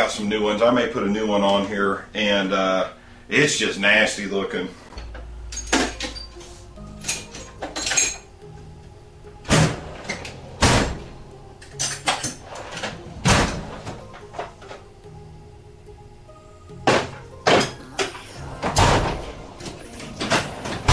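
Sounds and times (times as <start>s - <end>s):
background music: 0.0s - 20.9s
tools clattering: 4.9s - 8.4s, 11.6s - 14.9s
metal drawers sliding: 9.4s - 14.9s, 16.8s - 20.9s.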